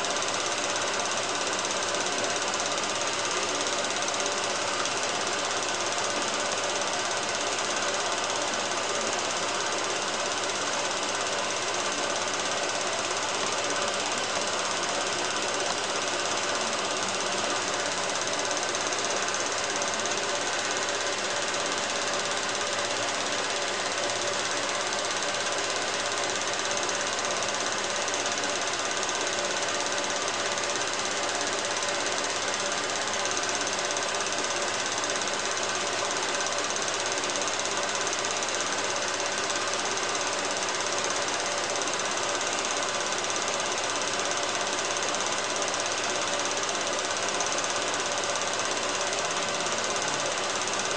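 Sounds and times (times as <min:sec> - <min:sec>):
film projector clattering: 0:00.0 - 0:50.9.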